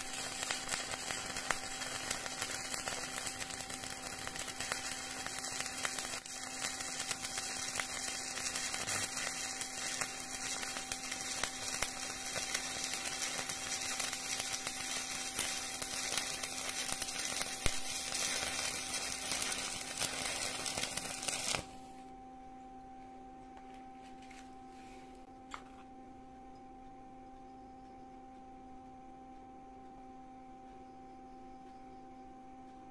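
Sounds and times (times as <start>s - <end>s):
welding arc crackling: 0.0s - 21.8s
low steady hum: 0.0s - 32.9s.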